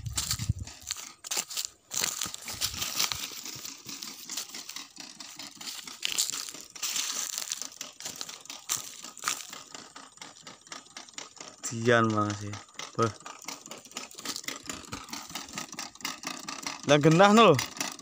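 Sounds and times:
footsteps crunching through straw: 0:00.0 - 0:09.6.

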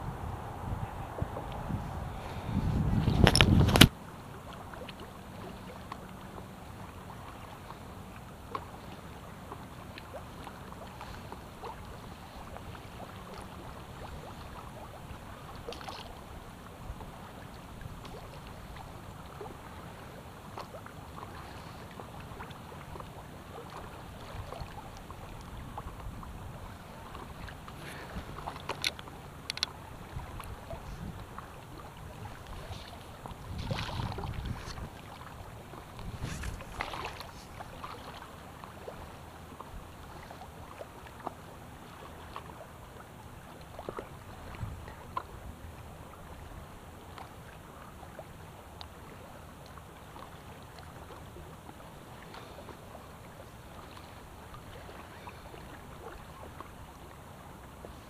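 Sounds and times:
paddle splashes: 0:00.0 - 0:58.0
water lapping against hull: 0:00.0 - 0:58.0
paddle clicks: 0:03.0 - 0:04.0, 0:20.5 - 0:38.8.

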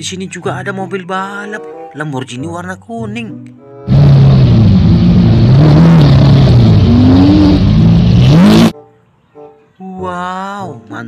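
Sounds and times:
car engine revving loudly: 0:03.9 - 0:08.7.

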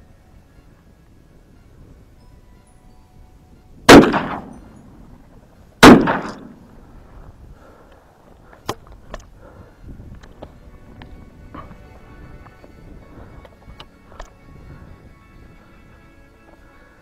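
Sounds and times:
shotgun shots echoing: 0:03.9 - 0:04.6, 0:05.8 - 0:06.6.

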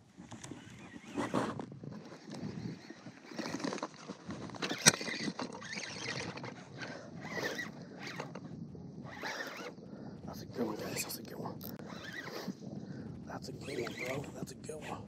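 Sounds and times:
fishing line rasping: 0:09.0 - 0:09.8, 0:11.7 - 0:12.7, 0:13.6 - 0:14.3.

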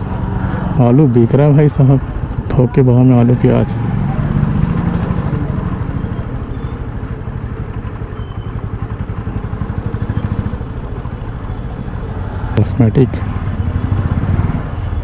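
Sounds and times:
small motorcycle engine running: 0:03.7 - 0:15.0.

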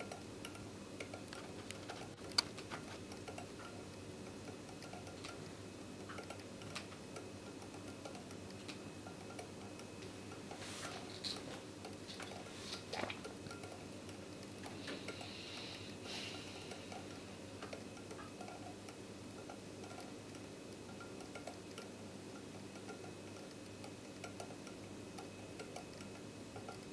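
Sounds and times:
wire scraping and clicking on magnets: 0:00.0 - 0:26.9.

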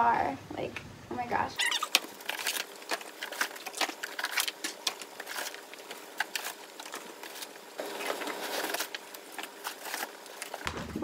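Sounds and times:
plastic bags rustling and crinkling: 0:01.6 - 0:11.0.

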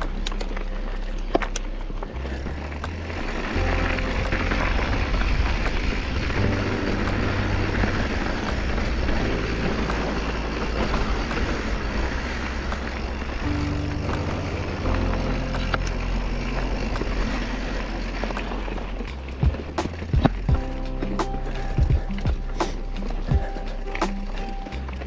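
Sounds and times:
bike clicks and rattles: 0:00.0 - 0:25.0
bike tyres rolling on dirt: 0:00.0 - 0:25.0
upbeat music with bass line: 0:19.1 - 0:25.0.

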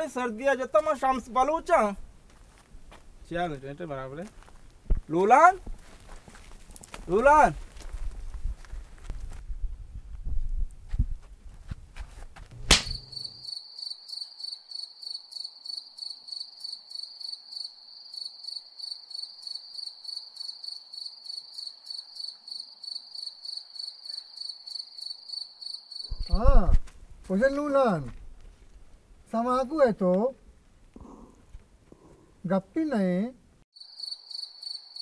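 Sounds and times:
sharp click: 0:12.6 - 0:13.4
crickets chirping: 0:12.9 - 0:26.4, 0:33.8 - 0:35.0.

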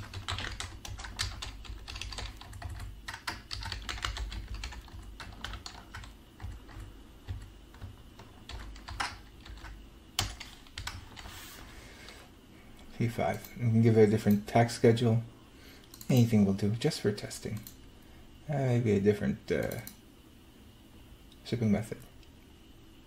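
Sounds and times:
computer keyboard typing: 0:00.0 - 0:11.3.

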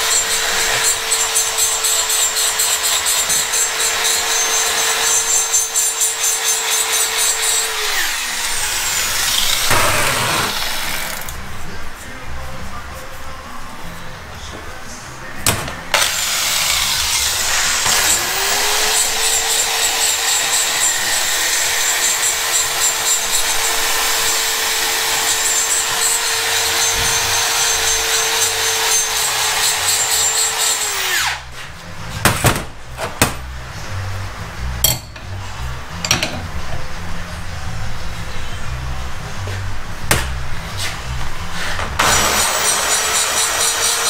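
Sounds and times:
rotary grinder whining: 0:00.0 - 0:11.5, 0:15.8 - 0:31.5, 0:42.0 - 0:44.0
sharp knocks: 0:15.4 - 0:16.0, 0:32.2 - 0:33.5, 0:40.1 - 0:40.4.

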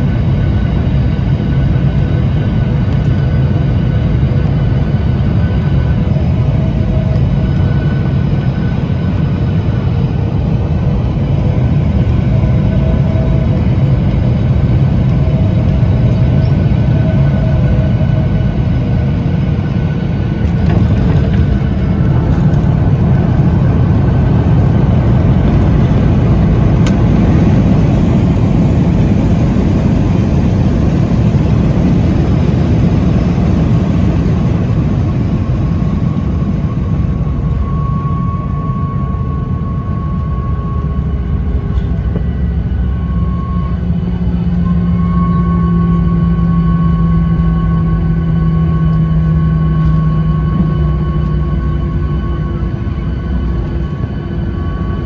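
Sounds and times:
aircraft cabin rumble: 0:00.0 - 0:55.0
thin steady whine: 0:11.6 - 0:55.0.

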